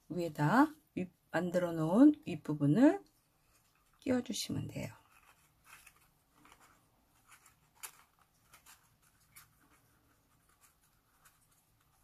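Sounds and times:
paper rustling and crinkling: 5.0s - 12.0s.

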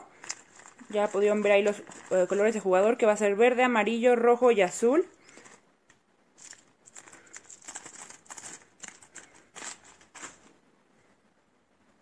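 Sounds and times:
plastic bag crinkling: 0.0s - 3.1s, 6.4s - 10.6s.

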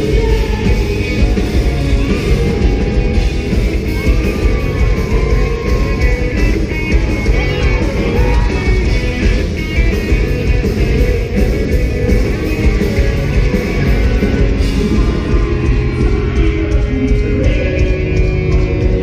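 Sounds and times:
bass guitar: 0.0s - 19.0s
drums: 0.0s - 19.0s
electric guitars: 0.0s - 19.0s.

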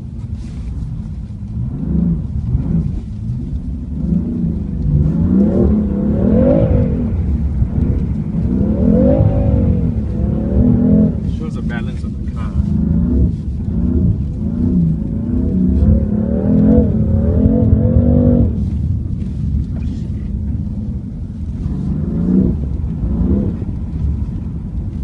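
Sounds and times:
car cabin road rumble: 0.0s - 25.0s.

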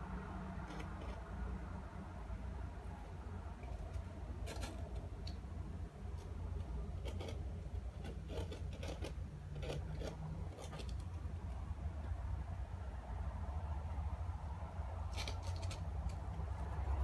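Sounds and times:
low steady hum: 0.0s - 17.0s
hamster claws scratching: 0.4s - 1.7s, 2.8s - 12.2s, 15.0s - 17.0s.

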